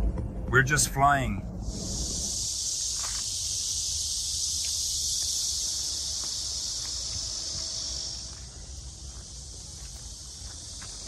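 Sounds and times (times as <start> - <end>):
low rumble: 0.0 - 5.2
cicadas buzzing: 1.4 - 11.0.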